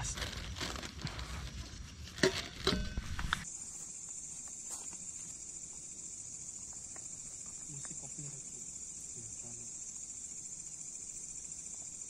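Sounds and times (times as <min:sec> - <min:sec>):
night insects chirring: 0:00.0 - 0:12.0.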